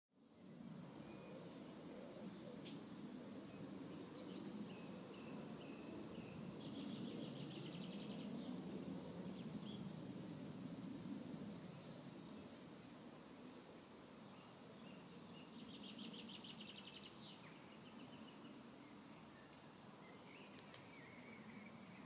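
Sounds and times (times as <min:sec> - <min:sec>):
songbirds chirping: 0:00.1 - 0:22.0.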